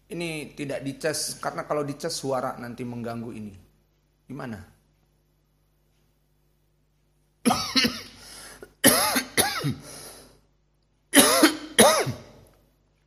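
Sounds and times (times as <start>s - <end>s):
man coughing: 7.4s - 8.2s, 8.8s - 9.9s, 11.2s - 12.4s.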